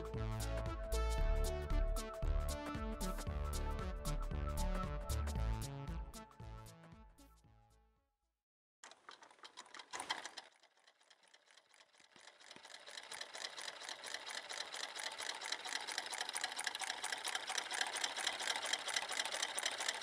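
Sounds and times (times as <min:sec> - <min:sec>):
small engine mechanical clatter: 0:08.8 - 0:20.0.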